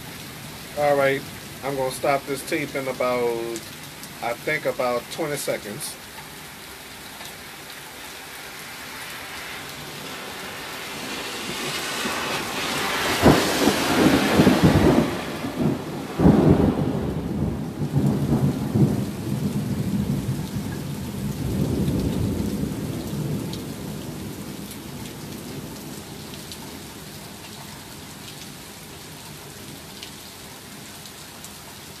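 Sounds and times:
steady rain: 0:00.0 - 0:32.0
thunder rumbling and cracking: 0:09.9 - 0:24.7.

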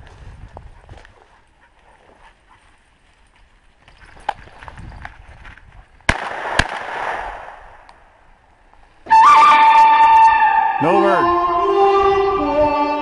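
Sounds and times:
shotgun shots with echo: 0:06.1 - 0:07.8.

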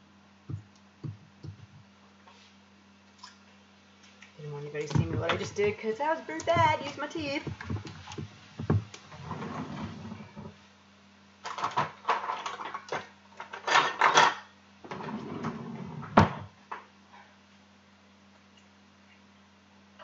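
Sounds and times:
faint steady hum: 0:00.0 - 0:20.0
kitchen items knocking and clattering: 0:06.5 - 0:08.9, 0:11.5 - 0:14.5.

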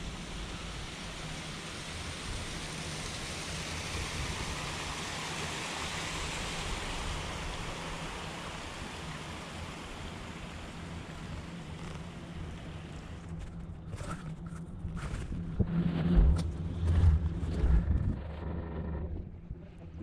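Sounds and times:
low steady hum: 0:00.0 - 0:20.0
running water rushing: 0:00.1 - 0:13.2.

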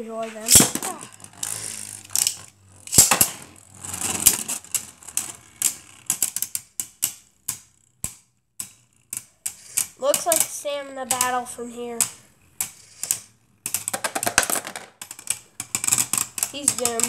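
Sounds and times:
spinning tops whirring: 0:00.2 - 0:17.0
spinning tops clacking: 0:00.4 - 0:17.0.

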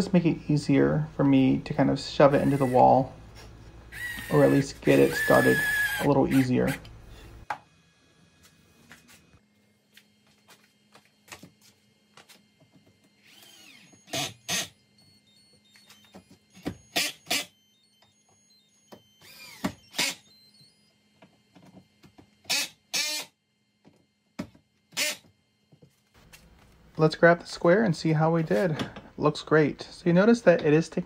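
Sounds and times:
drill driving screws: 0:02.3 - 0:03.0, 0:03.9 - 0:06.8, 0:13.2 - 0:14.7, 0:16.9 - 0:17.5, 0:19.2 - 0:20.3, 0:22.5 - 0:23.3, 0:24.9 - 0:25.2.

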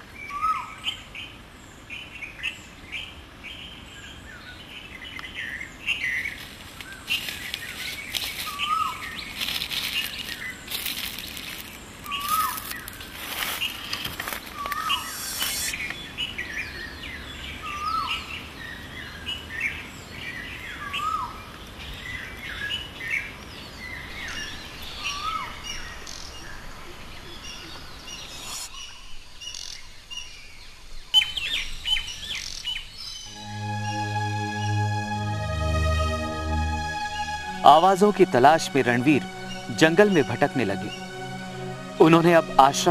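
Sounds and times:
forest birds chirping: 0:00.0 - 0:42.3
noisy swishes: 0:13.2 - 0:15.9.

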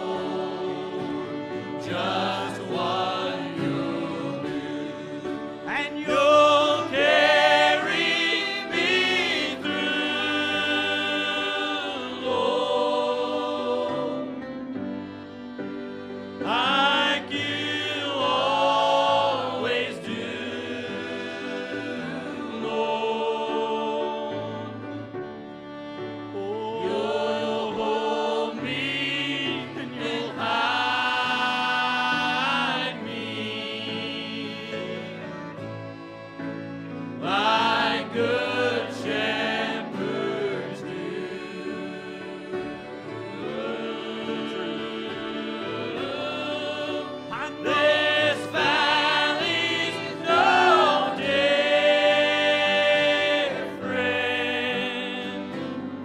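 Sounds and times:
men singing gospel duet: 0:00.0 - 0:25.0, 0:26.3 - 0:36.4, 0:37.2 - 0:56.0.

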